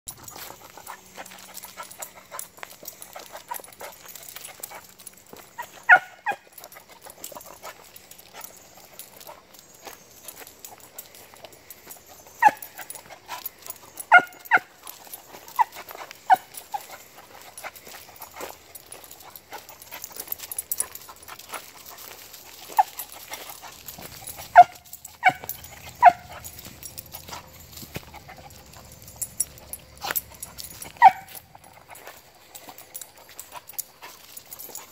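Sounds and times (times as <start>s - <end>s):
dog yipping and whining: 5.6s - 6.7s, 12.2s - 13.0s, 13.8s - 17.0s, 23.6s - 31.7s.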